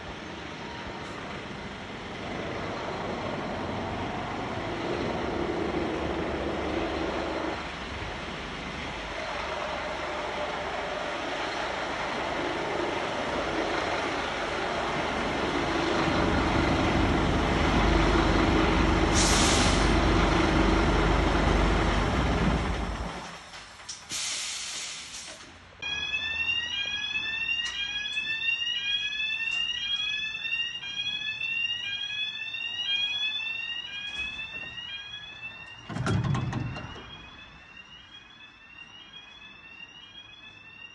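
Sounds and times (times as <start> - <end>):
air brake hisses: 19.1 - 19.9, 23.9 - 25.5.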